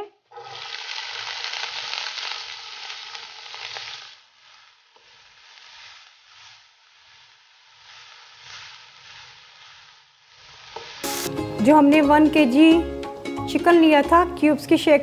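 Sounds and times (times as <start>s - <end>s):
onion sizzling in hot oil: 0.0s - 13.0s.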